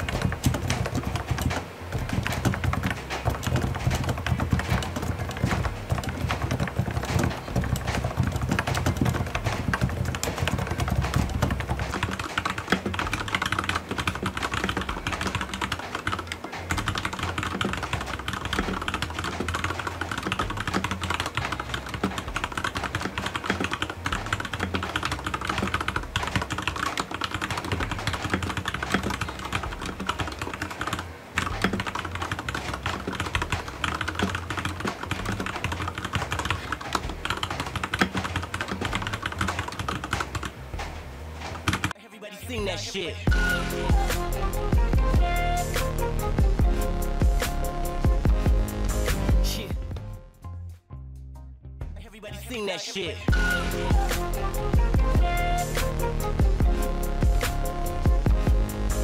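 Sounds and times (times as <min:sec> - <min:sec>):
typing on mechanical keyboard: 0:00.0 - 0:40.6, 0:41.5 - 0:42.0
fast typing on keyboard: 0:00.0 - 0:42.0, 0:53.3 - 0:59.0.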